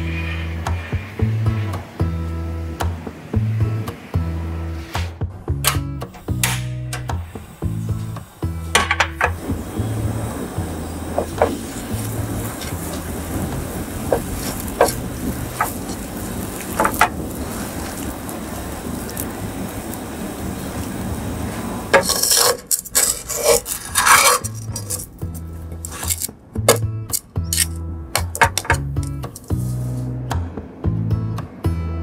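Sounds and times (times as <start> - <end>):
sandwich toasting in grill pan: 9.4 - 26.3
spatula scraping grill pan: 11.1 - 18.0, 21.9 - 26.8, 28.5 - 30.2.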